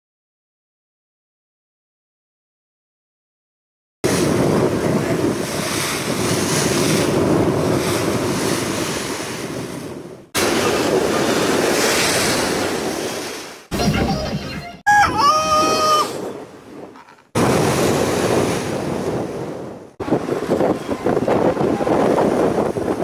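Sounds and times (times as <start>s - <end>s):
wind buffeting microphone: 4.0s - 13.6s, 14.9s - 23.0s
waves rushing: 4.0s - 14.0s, 15.0s - 23.0s.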